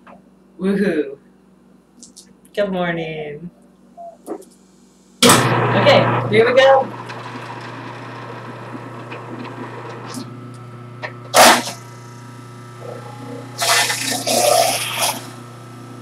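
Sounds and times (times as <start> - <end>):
electric juicer humming: 5.3 - 16.0
juicer grinding vegetables: 5.3 - 16.0.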